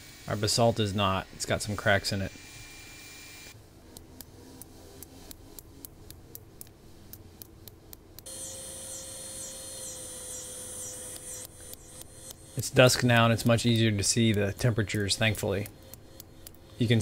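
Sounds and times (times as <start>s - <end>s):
steady hum: 0.0s - 17.0s
high pulsing trill: 4.7s - 17.0s.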